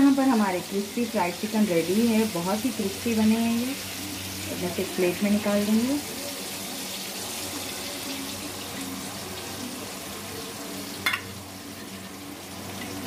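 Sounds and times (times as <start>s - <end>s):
chicken deep-frying in oil: 0.0s - 13.0s.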